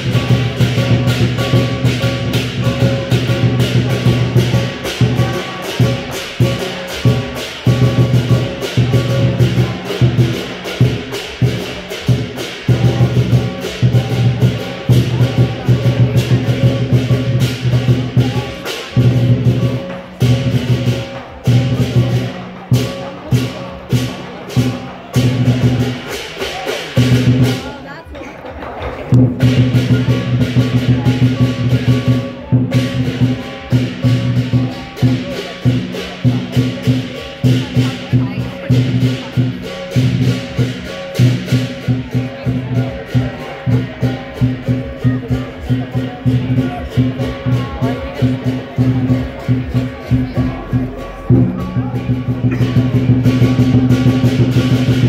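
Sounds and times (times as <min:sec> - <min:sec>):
cymbal clashes: 0:00.0 - 0:27.7, 0:29.2 - 0:55.0
large drum rolls: 0:00.0 - 0:55.0.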